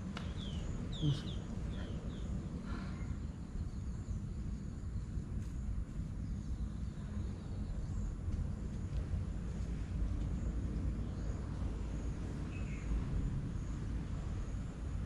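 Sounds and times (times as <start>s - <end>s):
faint high bird chirps: 0.2s - 4.3s.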